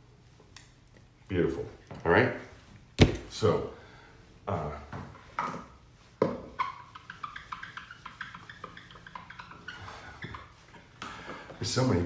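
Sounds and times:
eraser rubbing on whiteboard: 6.6 - 11.0.

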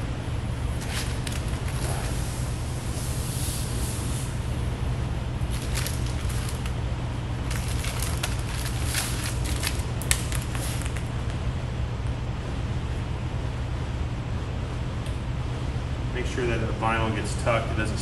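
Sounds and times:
film rubbed by hand crackling: 0.6 - 4.1, 5.4 - 6.8, 7.4 - 11.1.

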